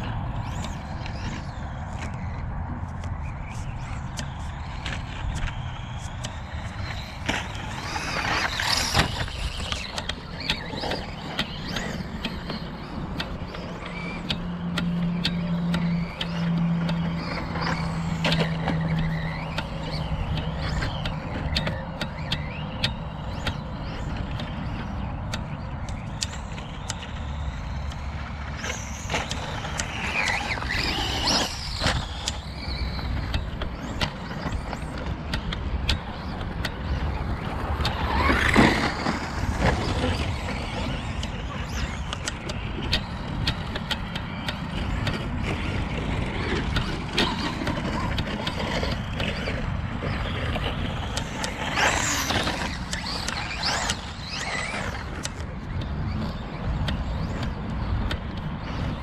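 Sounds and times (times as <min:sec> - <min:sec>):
electric motors whining: 0:00.0 - 0:59.0.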